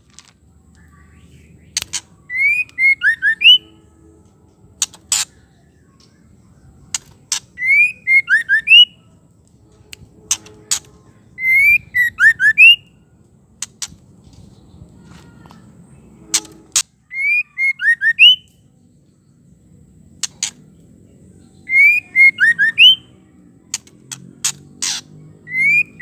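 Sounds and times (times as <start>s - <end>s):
bird singing whistled notes: 0.8s - 4.1s, 7.5s - 9.1s, 10.2s - 13.0s, 16.2s - 19.3s, 21.3s - 23.3s, 25.3s - 26.0s
sharp clicks: 23.7s - 25.0s.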